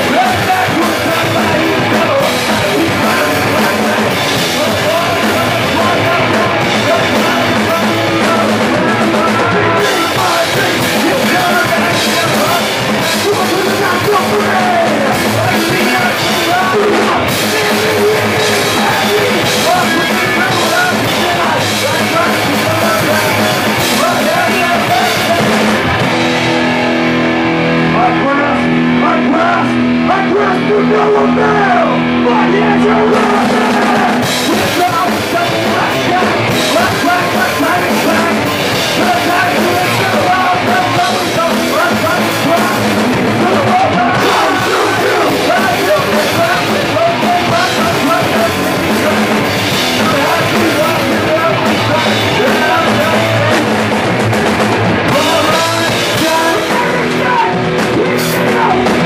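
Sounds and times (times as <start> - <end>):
person singing: 0.0 - 26.6, 27.7 - 59.0
drums and cymbals: 0.0 - 27.1, 33.1 - 59.0
bass guitar: 0.0 - 59.0
electric guitar: 0.0 - 59.0.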